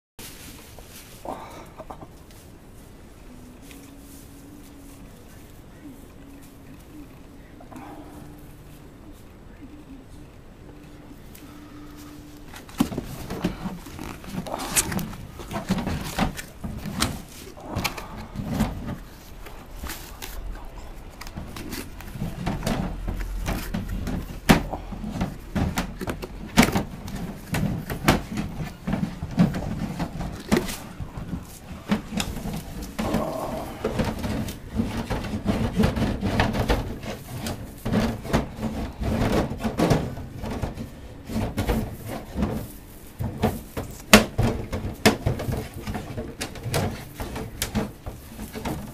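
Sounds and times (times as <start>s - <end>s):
goats rustling in straw: 0.2s - 1.3s, 2.2s - 7.1s, 11.2s - 48.9s.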